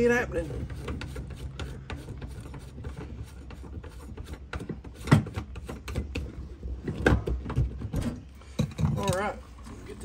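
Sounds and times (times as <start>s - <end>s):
plastic plug rubbing and clicking: 0.6s - 8.0s.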